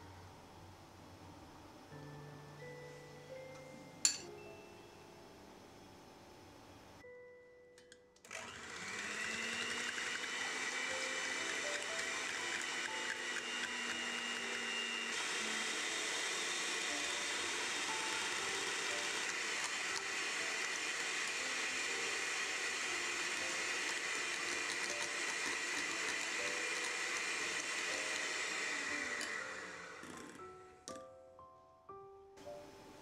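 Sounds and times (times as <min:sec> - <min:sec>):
electric hand mixer running: 0:08.3 - 0:30.7.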